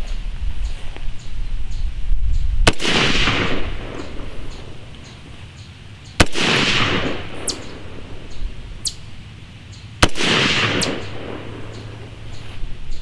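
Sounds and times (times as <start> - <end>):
rifle shot with echo: 2.6 - 4.9, 6.2 - 8.4, 10.0 - 12.1.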